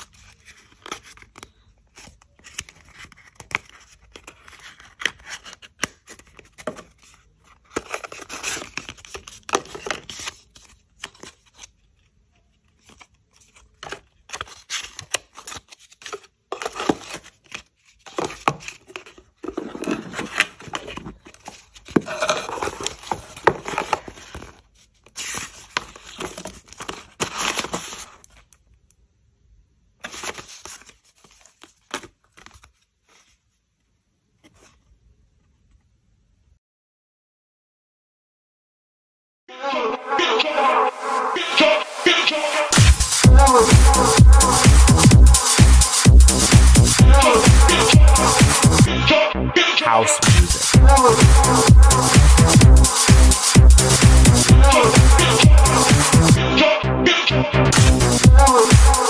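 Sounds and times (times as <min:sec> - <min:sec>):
paper and cardboard rustling: 0:00.0 - 0:28.7, 0:30.0 - 0:35.8.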